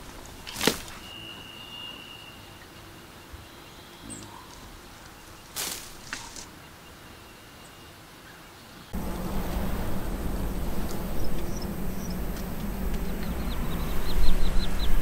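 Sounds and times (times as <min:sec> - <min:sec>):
plant stems snapping and rustling: 0:00.4 - 0:01.0, 0:05.5 - 0:06.5
faint high whistle: 0:00.9 - 0:04.2.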